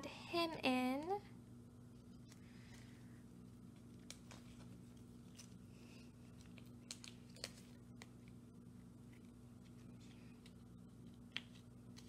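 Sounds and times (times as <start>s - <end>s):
low steady hum: 0.0s - 12.0s
plastic card sleeves clicking and crinkling: 3.9s - 5.6s, 6.3s - 8.3s, 9.1s - 12.0s.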